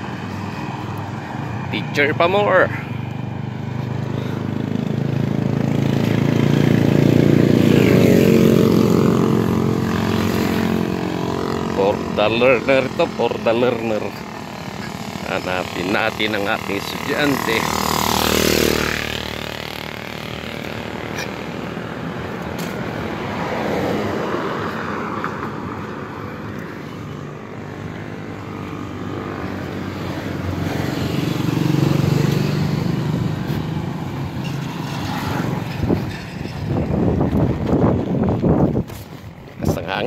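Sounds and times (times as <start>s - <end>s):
vehicle engine passing: 0.0s - 37.9s
road noise: 0.0s - 40.0s
wind buffeting microphone: 35.5s - 40.0s.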